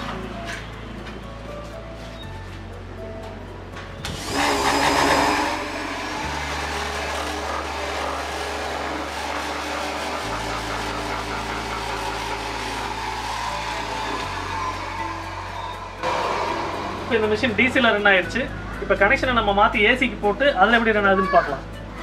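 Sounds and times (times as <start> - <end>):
chop saw running: 4.2 - 18.1.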